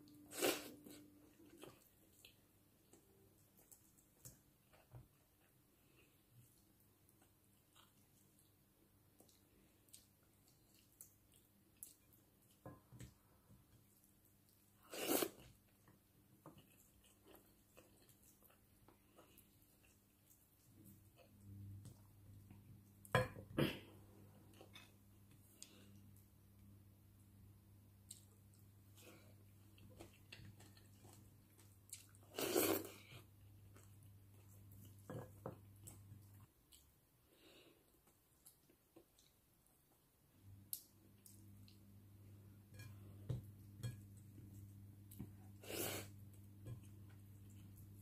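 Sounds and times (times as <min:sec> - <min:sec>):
soft chewing and lip smacks: 0:00.0 - 0:23.1, 0:24.2 - 0:27.3, 0:27.9 - 0:48.0
low steady hum: 0:00.0 - 0:48.0.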